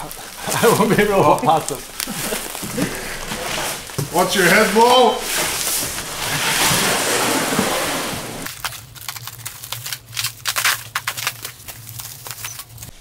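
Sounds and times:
loud hiss: 0:00.0 - 0:08.5.

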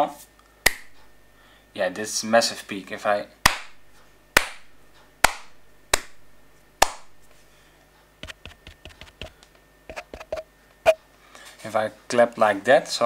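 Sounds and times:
hand claps: 0:00.7 - 0:01.0, 0:03.4 - 0:03.8, 0:04.4 - 0:06.2, 0:06.8 - 0:07.2.

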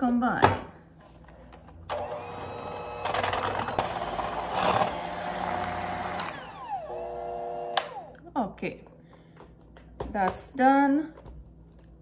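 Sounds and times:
electric hand mixer whine: 0:01.9 - 0:08.2.

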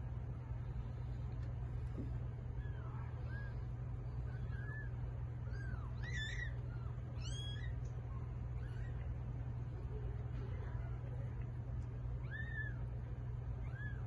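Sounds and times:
steady low hum: 0:00.0 - 0:14.0
kittens mewing: 0:02.2 - 0:09.7, 0:10.5 - 0:14.0.

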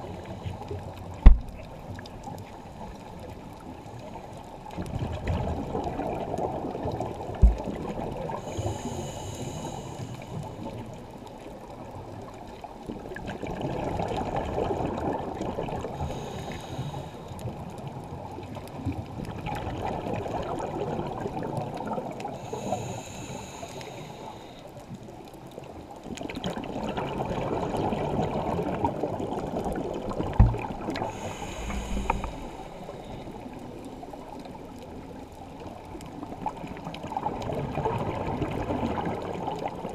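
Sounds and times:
gurgling exhaled bubbles: 0:04.7 - 0:09.0, 0:12.9 - 0:16.4, 0:17.5 - 0:22.5, 0:26.1 - 0:35.1, 0:35.7 - 0:39.9
scuba regulator hissing inhale: 0:08.3 - 0:10.7, 0:16.0 - 0:17.4, 0:22.3 - 0:24.7, 0:30.9 - 0:33.8.

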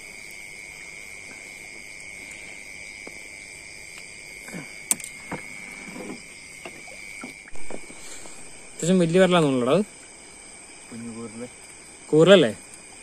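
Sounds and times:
crickets trilling: 0:00.0 - 0:13.0
sharp click: 0:04.9 - 0:05.2.

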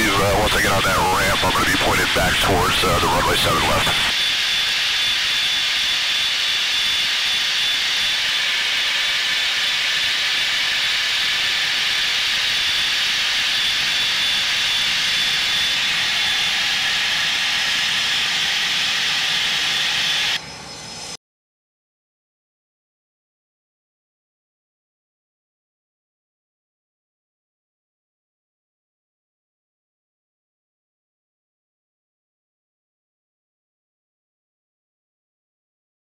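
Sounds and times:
jet engines hissing and whining: 0:00.0 - 0:21.2.

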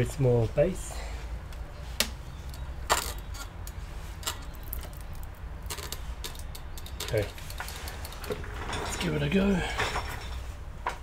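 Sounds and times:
small tools clicking and clinking: 0:02.4 - 0:10.4.

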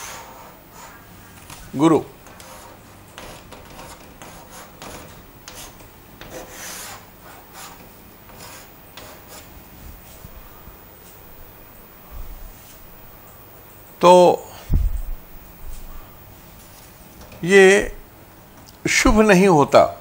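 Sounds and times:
chalk scratching on chalkboard: 0:02.2 - 0:10.4.

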